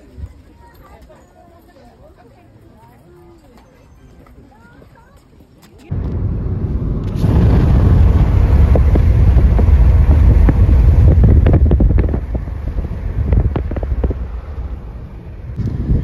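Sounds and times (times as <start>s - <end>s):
wind buffeting microphone: 5.9s - 16.0s.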